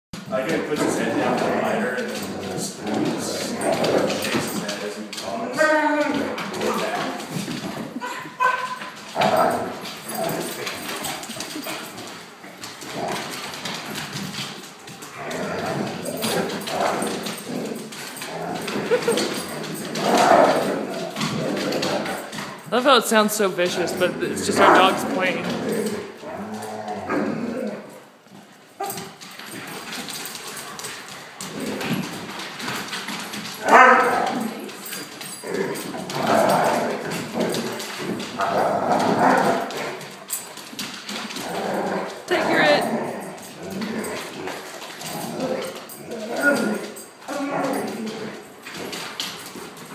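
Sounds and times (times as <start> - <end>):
dogs growling and grumbling: 0.2 - 22.9, 23.6 - 49.9
dog yips: 8.0 - 8.9.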